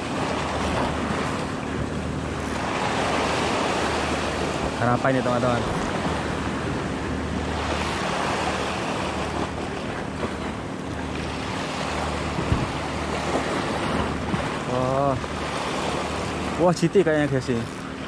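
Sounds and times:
surf washing over rocks: 0:00.0 - 0:18.0
wind on microphone: 0:11.2 - 0:16.3.

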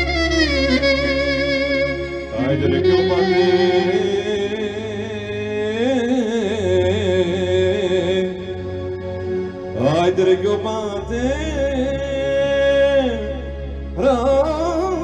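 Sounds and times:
clarinet melody: 0:00.0 - 0:04.8
keyboard chords: 0:00.0 - 0:15.0.

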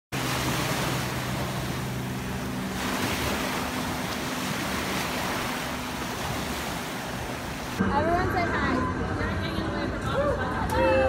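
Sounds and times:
waves breaking on beach: 0:00.1 - 0:07.8
low steady hum: 0:00.2 - 0:11.0.

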